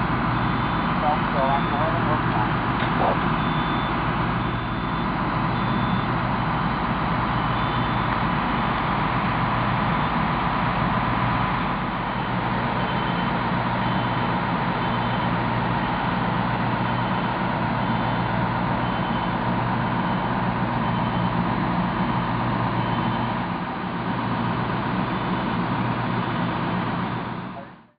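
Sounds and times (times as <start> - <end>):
diesel engine running: 0.0 - 28.0.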